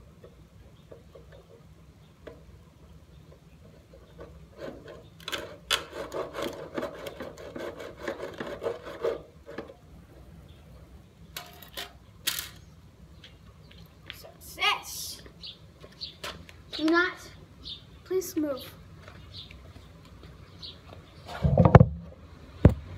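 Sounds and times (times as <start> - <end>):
hand saw rasping across wood: 4.6 - 9.3.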